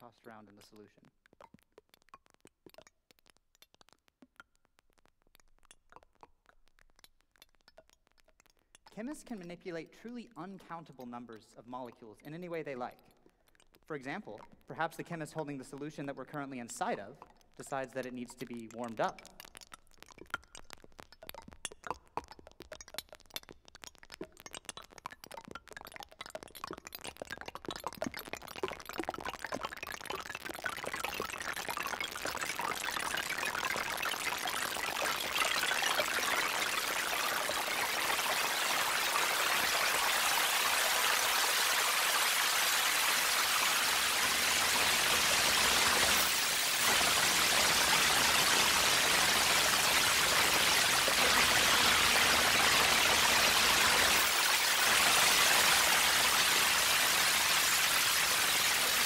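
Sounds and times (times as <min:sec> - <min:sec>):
electronic clicks and glassy pings: 0:18.3 - 0:39.7.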